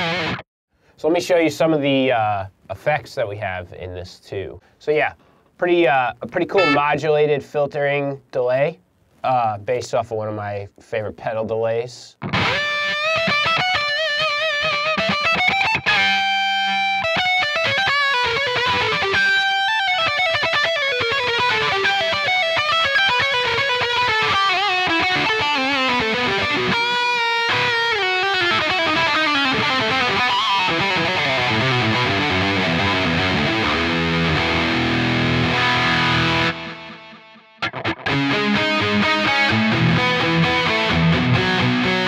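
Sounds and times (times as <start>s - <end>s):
electric guitar with delay: 0.0s - 0.4s, 12.2s - 42.0s.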